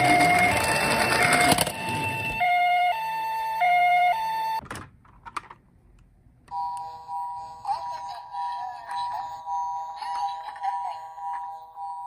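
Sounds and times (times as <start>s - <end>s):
toy wheels rolling: 0.0s - 2.4s
toy siren two-tone: 0.0s - 4.6s.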